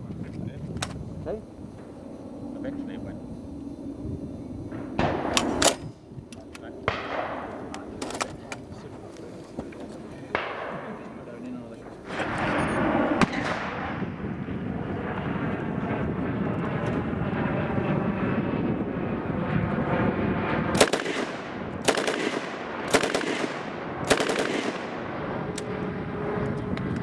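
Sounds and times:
machine gun firing: 20.7 - 25.3.

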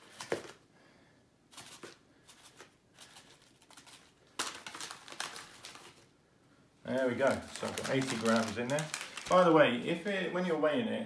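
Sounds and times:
packet rustling: 1.5 - 6.2, 6.8 - 10.0.

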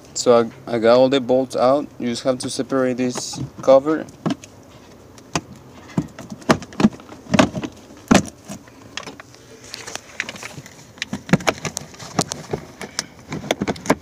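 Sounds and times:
hard plastic knocks and clatter: 3.1 - 4.5, 5.3 - 9.2, 10.2 - 14.0.

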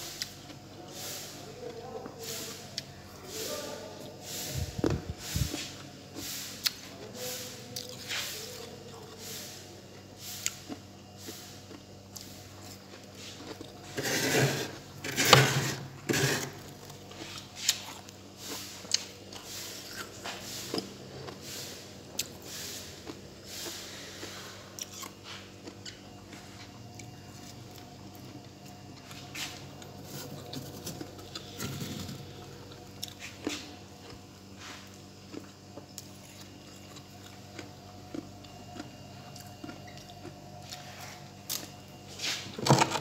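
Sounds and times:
faint steady hum: 0.0 - 43.0
scraping freezer frost: 12.2 - 25.5, 29.0 - 35.4.

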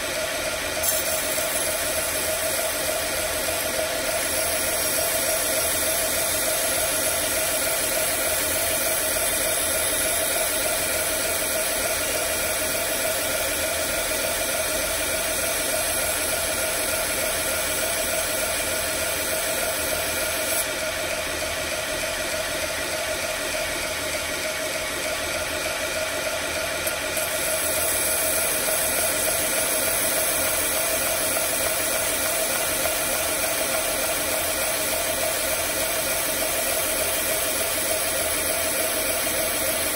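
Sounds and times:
belt grinder motor whir: 0.6 - 20.8
knife blade grinding hiss: 0.8 - 6.7.

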